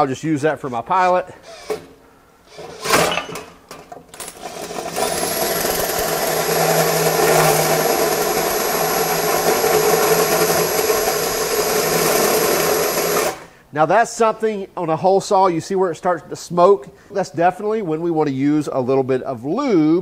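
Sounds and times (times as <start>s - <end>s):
drill grinding through steel: 1.4s - 1.9s, 4.2s - 13.4s.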